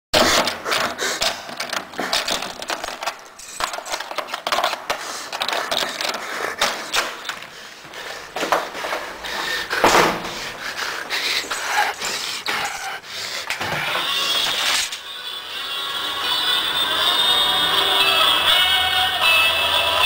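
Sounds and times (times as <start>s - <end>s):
clattering clicks and clacks: 0.2s - 7.6s.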